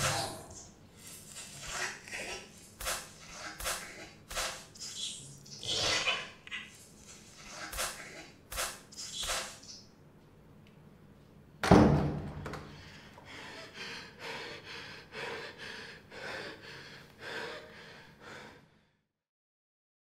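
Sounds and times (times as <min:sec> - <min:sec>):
heavy rapid breaths: 0:00.9 - 0:04.8, 0:12.7 - 0:19.0
wooden door thunking open: 0:11.6 - 0:12.7.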